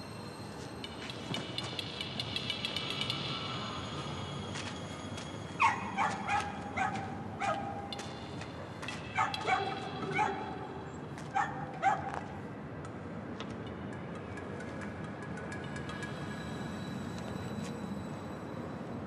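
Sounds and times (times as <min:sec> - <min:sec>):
dog yapping: 0:05.6 - 0:07.8, 0:09.2 - 0:10.6, 0:11.4 - 0:12.1.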